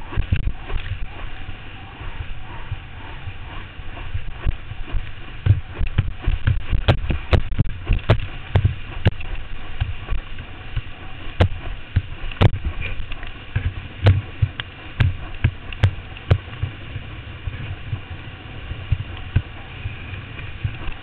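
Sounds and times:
rushing water and spray: 0.0 - 21.0
wind buffeting microphone: 0.0 - 21.0.

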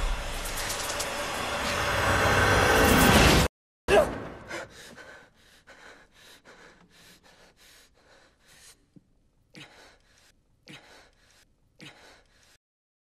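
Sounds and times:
quick breathing: 4.5 - 12.6.

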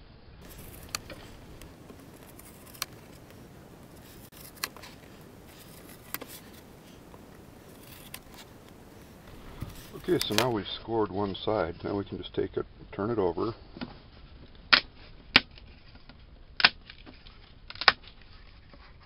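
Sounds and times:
hand cutter scoring foam board: 0.4 - 3.4, 4.0 - 6.7, 7.6 - 8.6.

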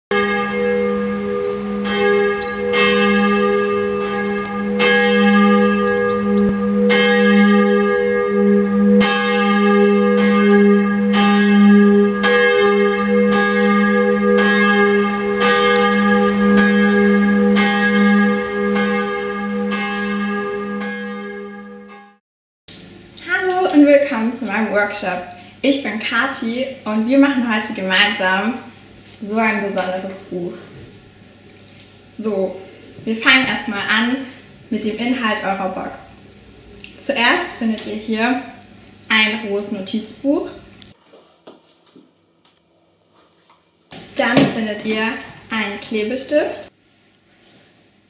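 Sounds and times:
church bells ringing: 0.1 - 22.2.

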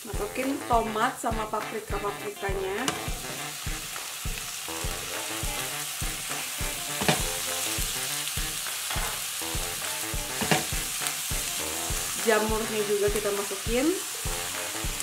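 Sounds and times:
background music with steady beat: 0.0 - 15.0
vegetables sizzling in hot oil: 0.0 - 15.0
spatula scraping pan: 6.9 - 7.8.

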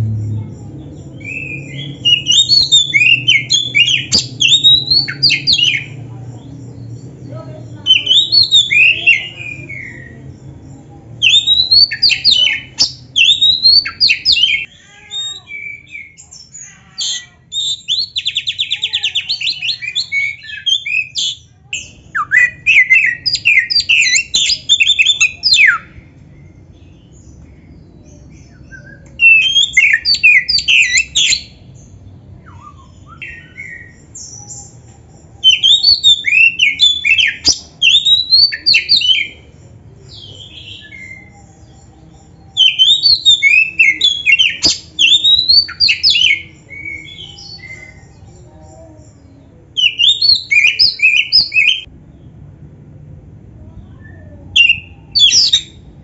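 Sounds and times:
bird singing whistled notes: 1.0 - 6.0, 7.8 - 16.6, 28.5 - 31.6, 35.4 - 39.4, 40.1 - 48.2, 49.8 - 51.9, 54.0 - 55.8.

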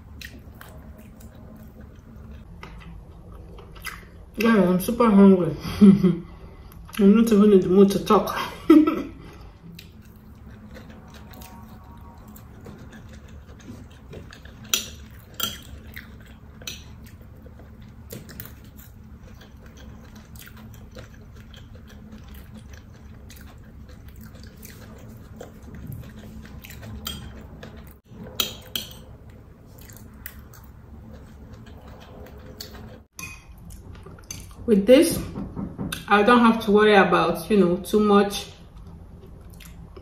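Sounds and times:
person chewing: 0.0 - 4.2, 9.3 - 34.6, 38.7 - 40.0.

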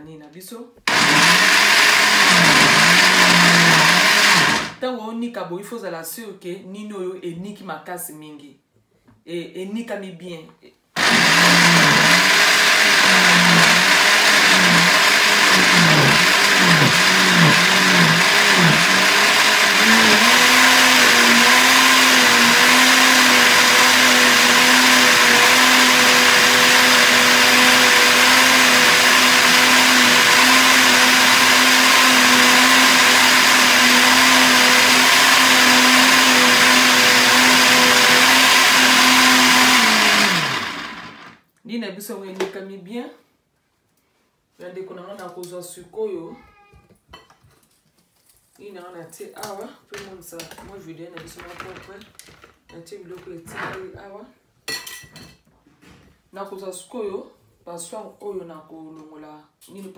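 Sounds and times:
blender motor running: 0.9 - 4.8, 11.0 - 41.4.

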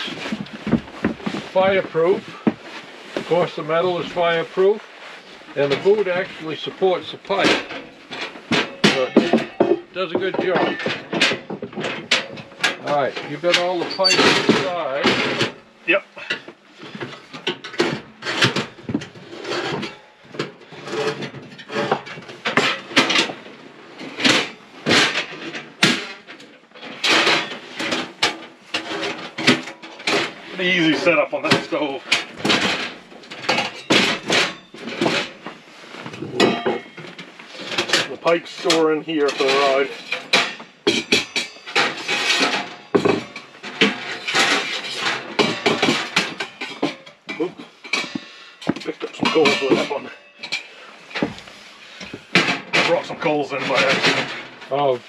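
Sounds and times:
metal scraping and rattling: 0.0 - 55.0
metal stove parts clanking: 7.3 - 15.6, 36.1 - 54.7.

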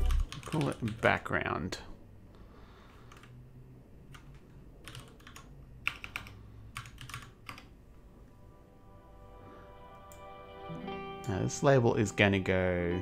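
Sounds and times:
computer keyboard typing: 0.0 - 1.1, 3.1 - 3.4, 4.1 - 7.7.

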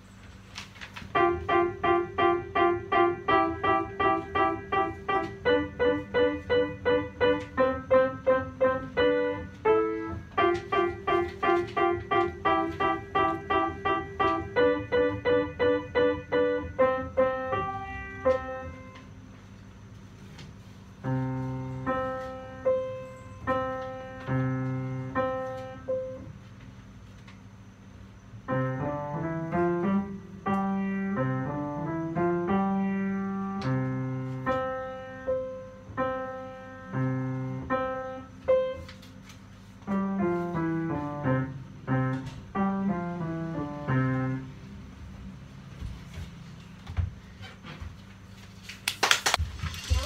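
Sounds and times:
upright piano playing: 1.1 - 19.3, 21.0 - 26.4, 28.4 - 38.9, 39.8 - 45.0.

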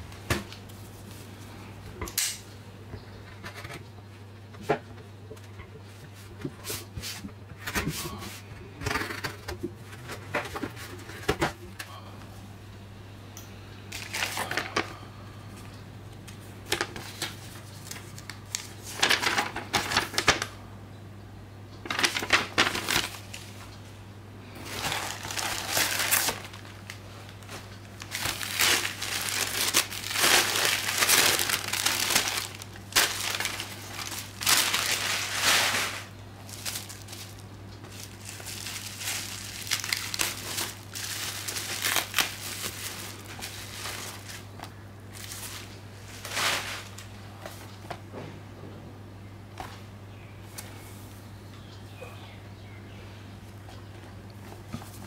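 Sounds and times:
steady low hum: 0.0 - 55.0
paper and bubble wrap crinkling: 13.9 - 14.8, 16.6 - 20.5, 21.9 - 23.6, 24.6 - 47.6.

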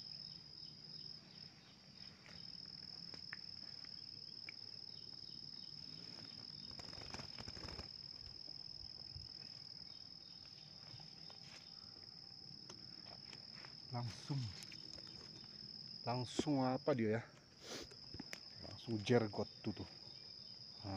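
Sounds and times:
insect high-pitched trill: 0.0 - 20.9
faint rustles and clicks: 5.8 - 8.4, 12.9 - 15.6.

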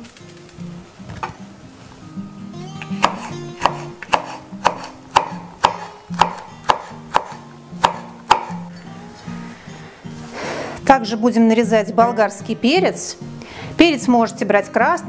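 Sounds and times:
background music: 0.0 - 15.0
knife slicing on wooden board: 3.0 - 8.6.

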